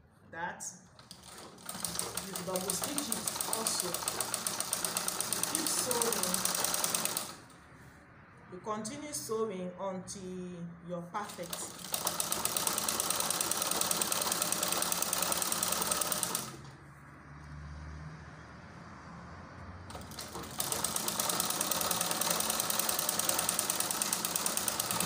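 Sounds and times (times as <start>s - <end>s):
sewing machine clatter: 1.0s - 7.4s, 11.3s - 16.7s, 19.9s - 25.0s.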